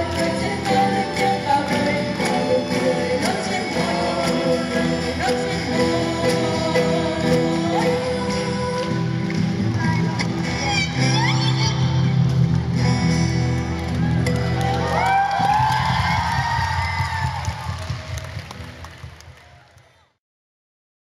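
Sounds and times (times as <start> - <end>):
youth vocal group singing: 0.0 - 9.1
acoustic guitars: 0.0 - 17.3.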